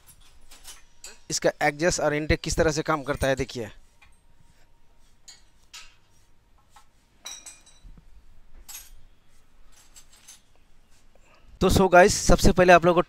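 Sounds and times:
metal tools clinking: 0.0s - 1.5s, 5.2s - 6.1s, 7.2s - 7.9s, 8.6s - 10.6s.

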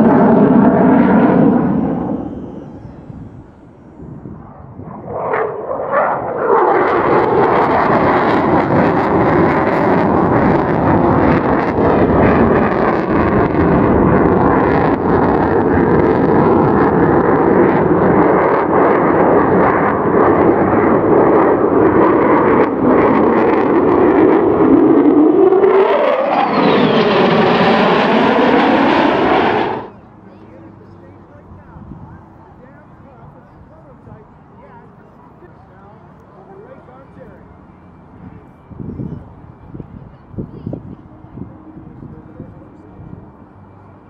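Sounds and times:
fighter jet roaring past: 0.0s - 30.2s.

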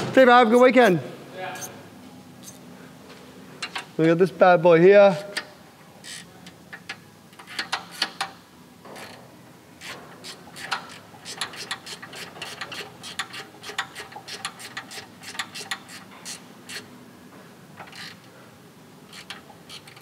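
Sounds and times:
ratcheting spanner clicking: 5.3s - 8.4s, 9.8s - 16.9s, 17.8s - 18.3s, 19.1s - 20.0s.

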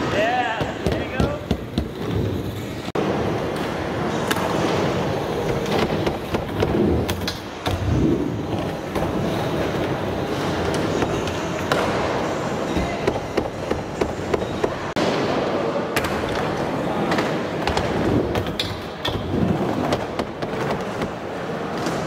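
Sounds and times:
skateboard wheels rolling on concrete: 1.0s - 22.0s.

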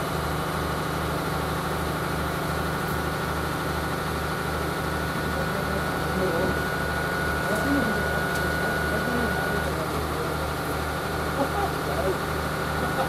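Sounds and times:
heavy engine idling: 0.0s - 13.0s
thin high whine: 6.2s - 9.8s.

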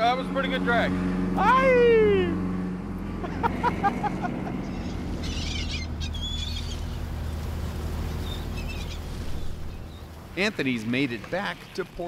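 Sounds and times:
boat engine droning: 0.0s - 12.0s
gulls calling: 3.2s - 12.0s.

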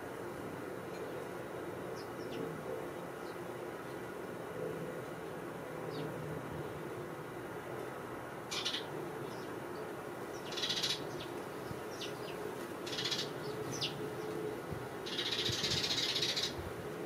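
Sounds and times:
sparrows chirping and chattering: 0.8s - 4.1s, 5.8s - 7.0s, 8.4s - 16.7s.

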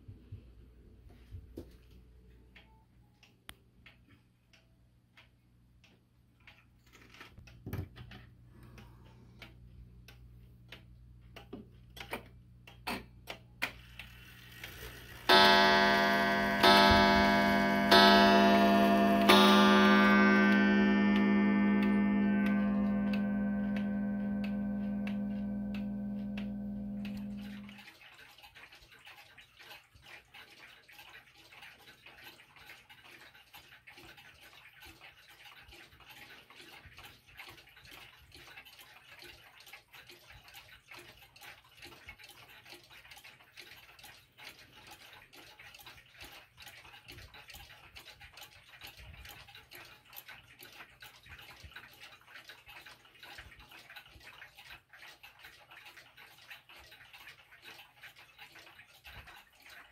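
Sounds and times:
pendulum clocks ticking: 15.1s - 28.0s, 37.5s - 59.9s.

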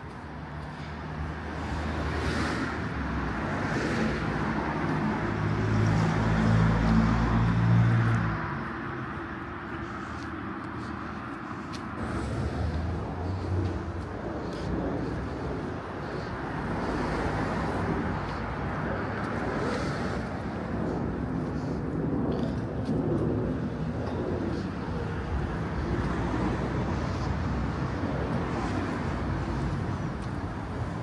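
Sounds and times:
cars passing on street: 0.0s - 31.0s.

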